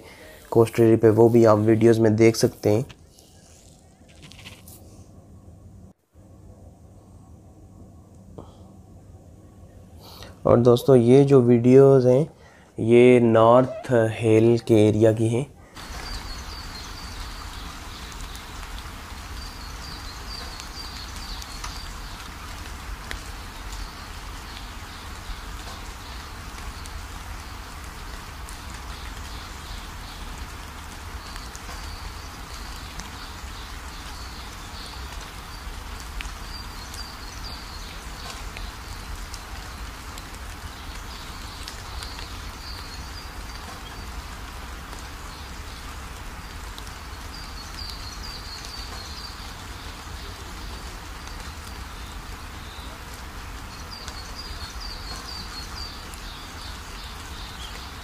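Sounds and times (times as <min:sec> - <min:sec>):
rain hissing on wet road: 0:15.8 - 0:58.0.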